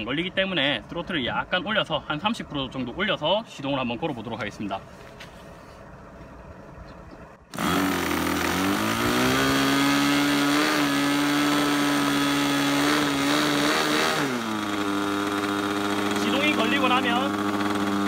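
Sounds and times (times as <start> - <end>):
electric starter: 7.5 - 18.0
model airplane engine running: 7.5 - 18.0.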